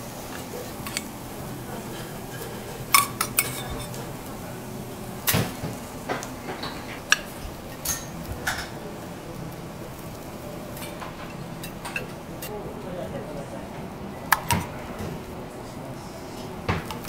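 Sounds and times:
low background hum: 0.0 - 17.0
spatula clinking on plate: 2.9 - 4.0.

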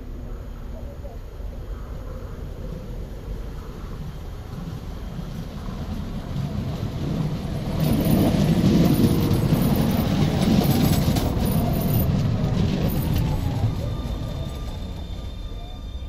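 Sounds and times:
faint high-pitched whine: 0.0 - 6.9
tram wheels rumbling on rails: 0.0 - 16.0.

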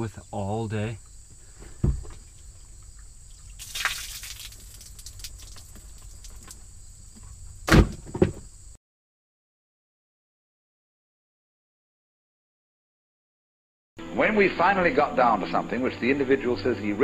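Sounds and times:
high insect drone: 0.0 - 8.8
boot thuds: 1.3 - 2.4, 7.2 - 8.5
water pouring and splashing: 1.9 - 7.1.

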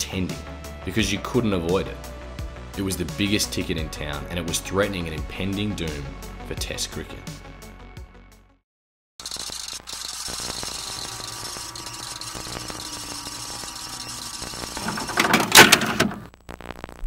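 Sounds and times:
tape mechanism whirring and rattling: 9.2 - 16.2.

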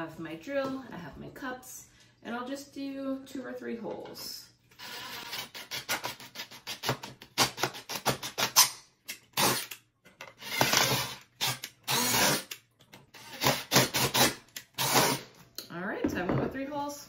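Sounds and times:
cordless drill boring through plastic: 4.8 - 6.8, 10.4 - 12.6, 13.2 - 15.2.

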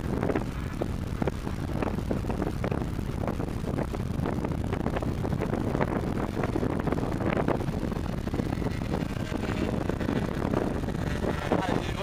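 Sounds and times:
wind buffeting microphone: 0.0 - 12.0
faint model plane propeller motor: 4.8 - 12.0.

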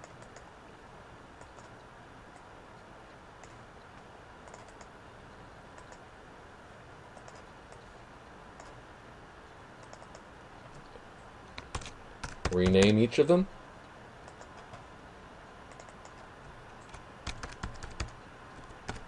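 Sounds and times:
mouse and keyboard clicks: 0.0 - 0.5, 1.4 - 1.8, 4.4 - 4.9, 7.2 - 7.9, 8.6 - 8.8, 9.8 - 10.9, 14.2 - 14.8, 15.7 - 19.0
low hiss: 0.0 - 19.0.

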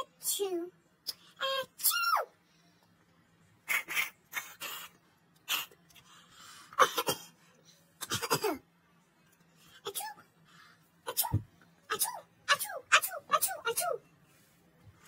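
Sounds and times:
person coughing: 6.8 - 7.4, 8.0 - 8.6.

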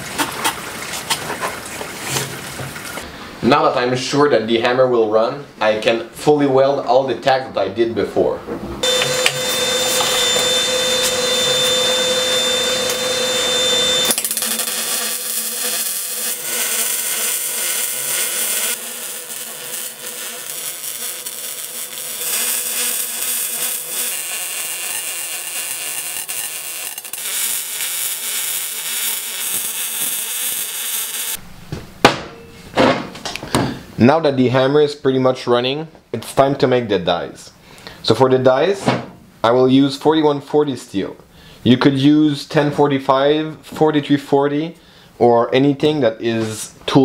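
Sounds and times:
arc welding crackle: 8.8 - 31.4
steady even whine: 8.8 - 32.6.

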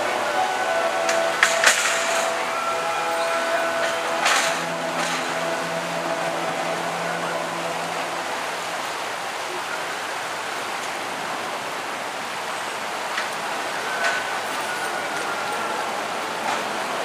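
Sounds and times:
low hum: 0.0 - 9.9
water rushing and splashing: 0.0 - 17.0.

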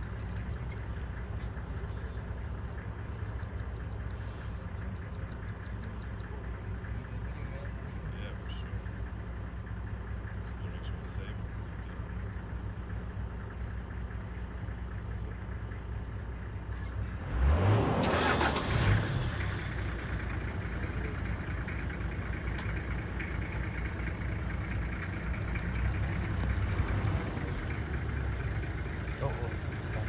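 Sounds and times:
vehicle engine idling and revving: 0.0 - 30.0.

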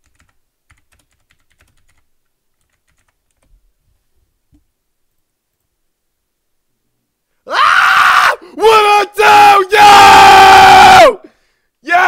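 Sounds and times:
faint typing on a keyboard: 0.0 - 5.8.

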